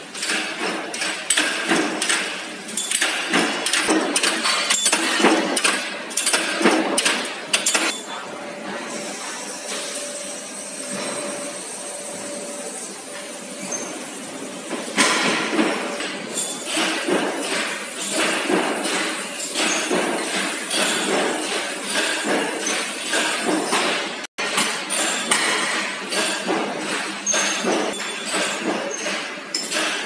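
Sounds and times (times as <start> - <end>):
metal knocks and bangs: 0.1 - 7.9, 14.6 - 30.0.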